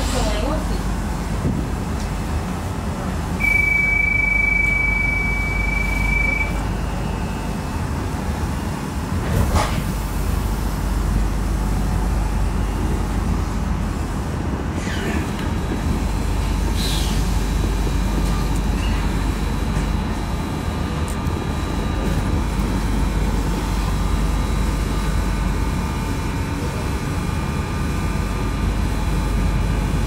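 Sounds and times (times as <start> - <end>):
train carriage rumble: 0.0 - 30.0
long high electronic beep: 3.4 - 6.7.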